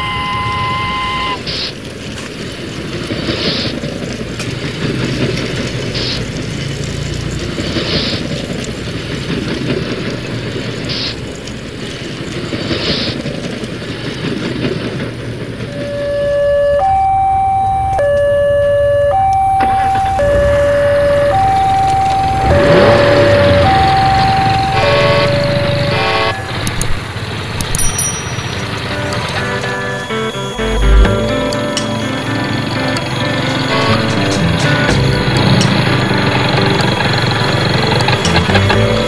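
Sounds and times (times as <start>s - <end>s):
train whistle: 0.0s - 1.7s, 15.7s - 17.2s, 18.8s - 26.9s, 28.9s - 39.0s
two-tone siren: 0.0s - 1.8s, 15.6s - 27.1s, 28.4s - 39.0s
train rumbling: 0.0s - 39.0s
short hiss: 3.3s - 3.8s.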